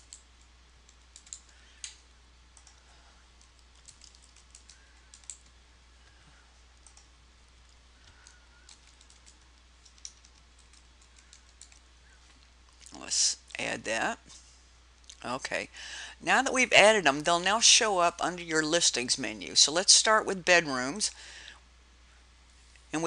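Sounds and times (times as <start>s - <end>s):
faint keyboard typing: 0.0s - 13.0s
low steady hum: 0.0s - 23.0s.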